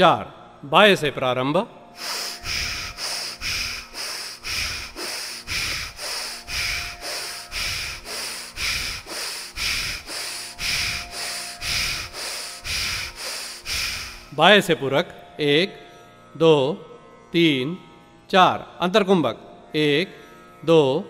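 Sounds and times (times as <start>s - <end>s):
forceful nasal breathing: 1.9s - 14.5s.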